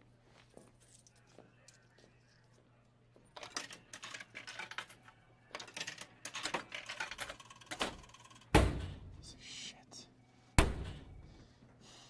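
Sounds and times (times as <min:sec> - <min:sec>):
vending machine heavy thunk: 0:07.8 - 0:09.2, 0:10.6 - 0:11.2.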